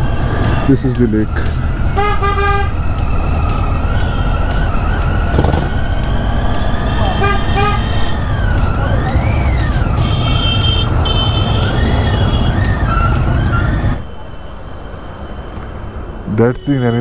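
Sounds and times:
road noise: 0:00.0 - 0:17.0
motorcycle engine: 0:02.0 - 0:14.2
vehicle horn beeps: 0:06.8 - 0:08.2, 0:10.0 - 0:13.2.

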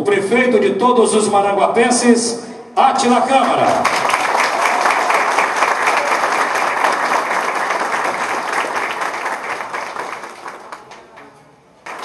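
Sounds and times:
audience applauding: 0:03.4 - 0:12.0.

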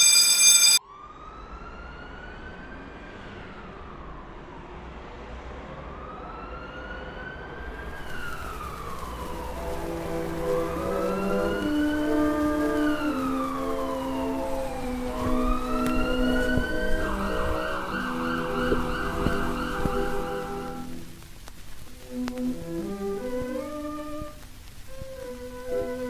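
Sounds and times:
loud electronic beep: 0:00.0 - 0:00.8
emergency siren wailing: 0:00.0 - 0:04.7, 0:05.8 - 0:20.9.

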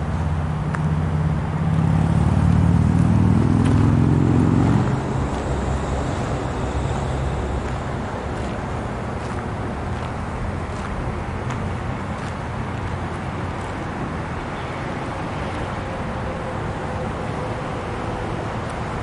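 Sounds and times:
locomotive diesel engine rumbling: 0:00.0 - 0:19.0.

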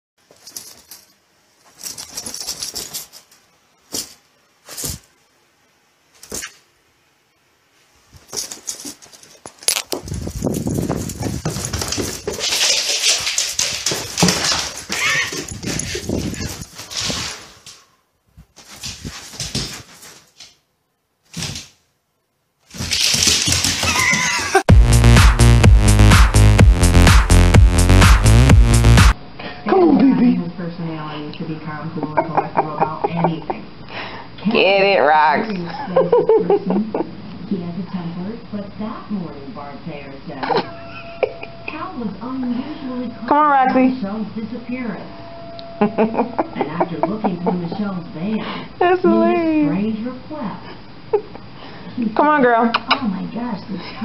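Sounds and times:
dog scratching on carpet: 0:10.0 - 0:17.6
dog whining: 0:14.8 - 0:16.8.

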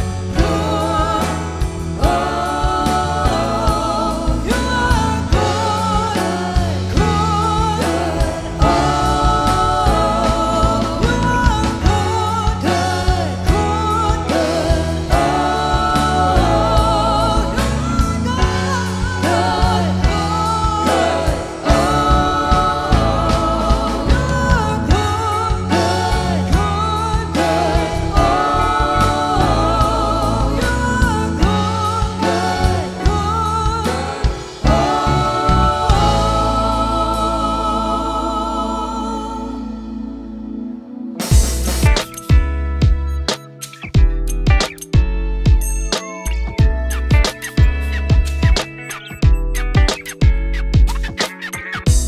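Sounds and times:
man and women singing: 0:00.0 - 0:40.2
electric bass: 0:00.0 - 0:51.2
steady beat: 0:13.5 - 0:37.4, 0:41.2 - 0:46.0.

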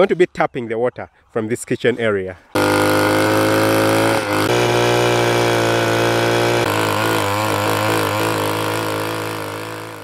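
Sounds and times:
small petrol engine running: 0:02.6 - 0:10.0.

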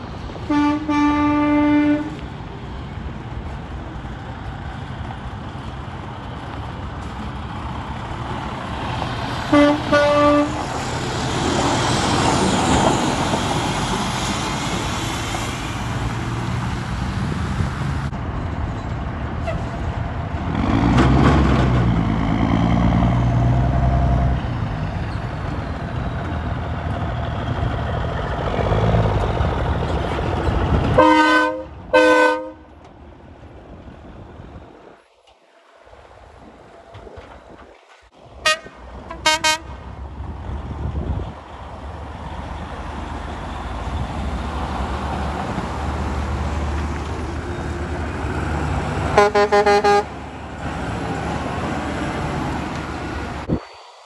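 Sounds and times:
truck diesel engines rumbling: 0:00.0 - 0:54.0
air horn blasts: 0:00.5 - 0:02.2, 0:09.5 - 0:10.6, 0:31.0 - 0:32.7, 0:38.4 - 0:39.7, 0:49.2 - 0:50.1.

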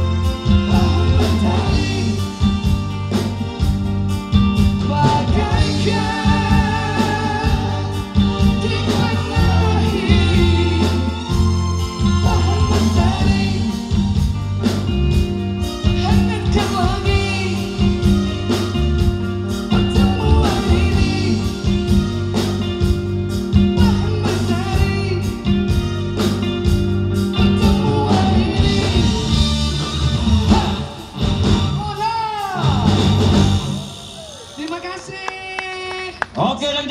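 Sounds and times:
electric guitar: 0:00.0 - 0:34.8
drums: 0:00.0 - 0:36.9
keyboard: 0:00.0 - 0:36.9
woman singing: 0:04.9 - 0:11.3.

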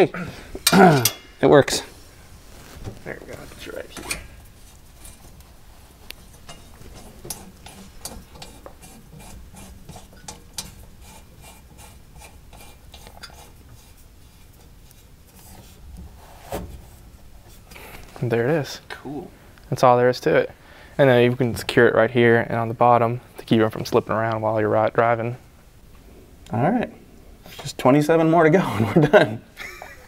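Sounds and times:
faint clicks and rubbing on hose: 0:02.5 - 0:16.1.

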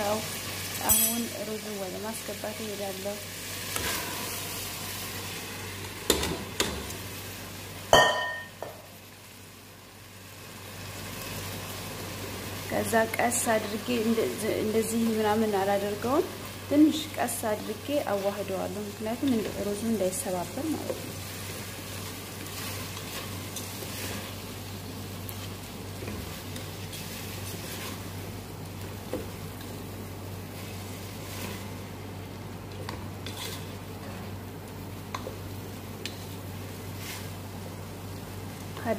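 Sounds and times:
food sizzling: 0:00.0 - 0:38.9
metal pots clanging: 0:08.0 - 0:08.7
wooden spoon scraping a pot: 0:22.5 - 0:24.4, 0:26.0 - 0:28.1, 0:33.2 - 0:34.3, 0:36.9 - 0:37.4.

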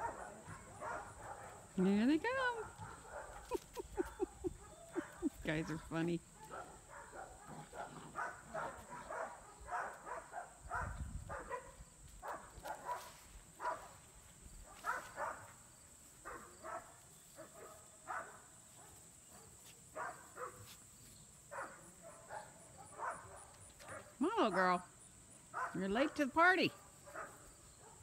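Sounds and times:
puppies yipping and barking: 0:03.2 - 0:05.4.

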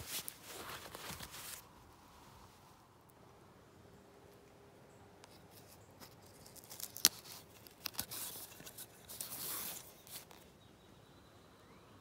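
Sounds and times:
scraping and rustling against clothing: 0:00.0 - 0:02.8, 0:05.3 - 0:10.5.

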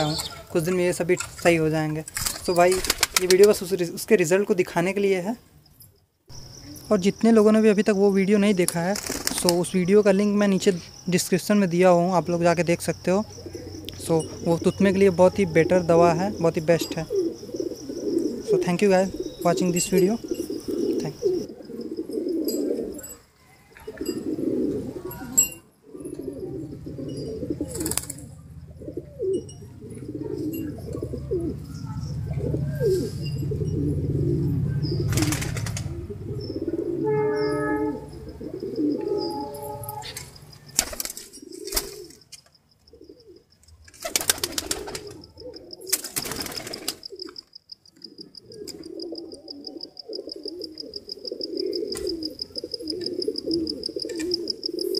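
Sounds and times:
pigeons cooing: 0:00.0 - 0:01.4, 0:12.9 - 0:54.9.

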